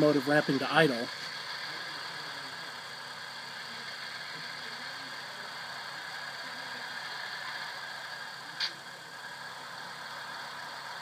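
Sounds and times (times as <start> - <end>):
diesel engine idling through small speaker: 0.0 - 11.0.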